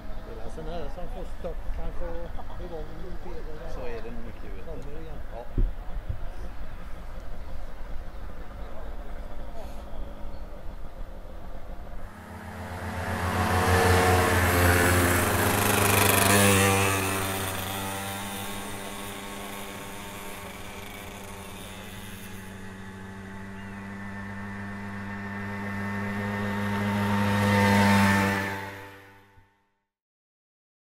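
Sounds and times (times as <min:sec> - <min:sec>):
mopeds riding past on gravel: 0:12.0 - 0:29.5.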